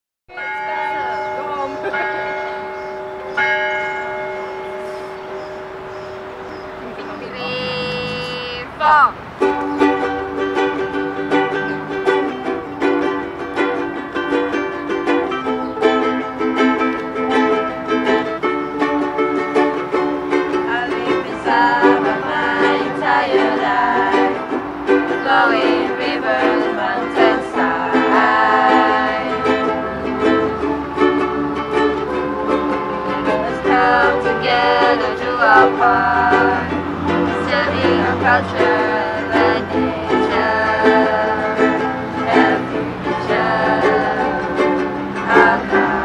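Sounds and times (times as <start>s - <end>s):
ukuleles strumming chords: 0.3s - 46.0s
people singing: 20.3s - 46.0s.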